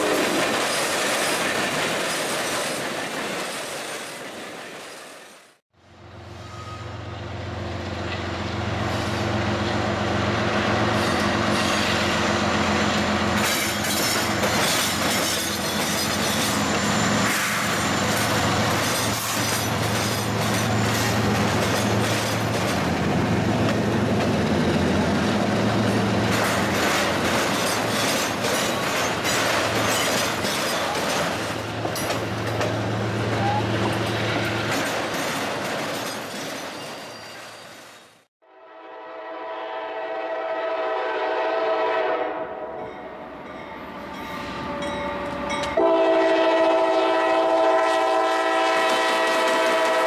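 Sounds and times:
train wheels clickety-clack: 0:00.0 - 0:05.2, 0:12.9 - 0:37.6, 0:48.7 - 0:50.0.

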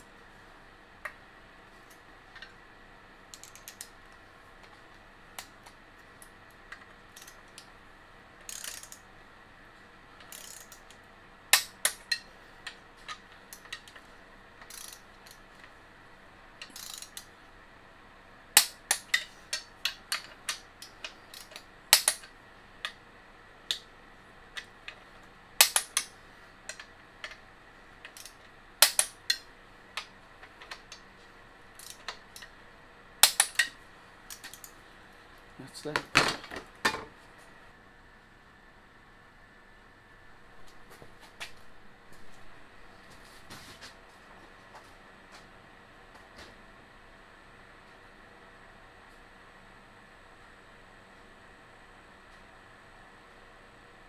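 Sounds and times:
socket ratchet clicking: 0:03.3 - 0:03.9, 0:07.2 - 0:07.7, 0:08.4 - 0:09.0, 0:10.2 - 0:10.9, 0:14.6 - 0:15.4, 0:16.6 - 0:17.3, 0:18.6 - 0:22.3, 0:25.6 - 0:26.1, 0:28.1 - 0:29.4.

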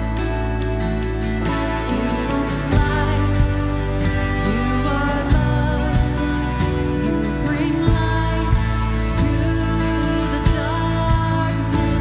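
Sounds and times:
worship band playing: 0:00.0 - 0:12.0.

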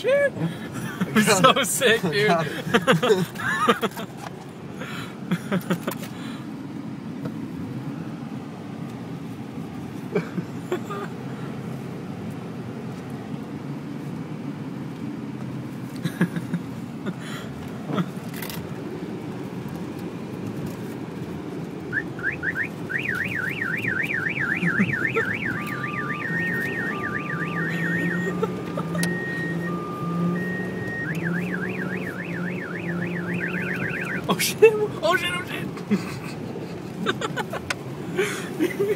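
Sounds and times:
car engine and road noise: 0:00.0 - 0:38.9
police siren yelp and hi-lo: 0:21.9 - 0:34.4.

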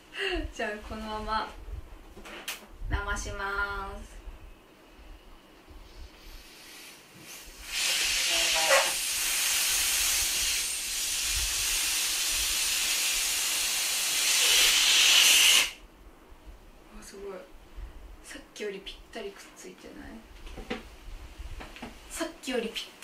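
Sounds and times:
air hissing out of balloon: 0:05.8 - 0:15.8.

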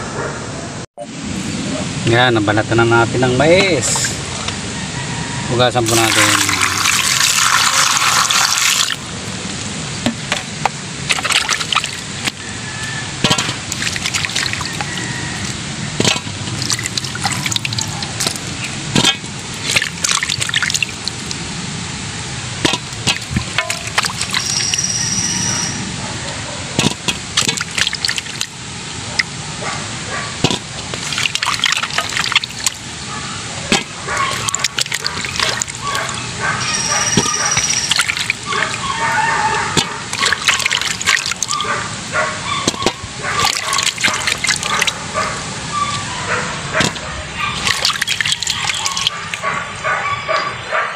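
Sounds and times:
water sloshing and splashing: 0:03.8 - 0:04.6, 0:05.9 - 0:50.7
water pouring into metal basin: 0:05.8 - 0:09.0, 0:11.1 - 0:21.4, 0:22.6 - 0:25.1, 0:26.8 - 0:28.6, 0:30.9 - 0:33.0, 0:33.7 - 0:36.2, 0:37.2 - 0:41.8, 0:42.7 - 0:45.0, 0:46.9 - 0:49.5.

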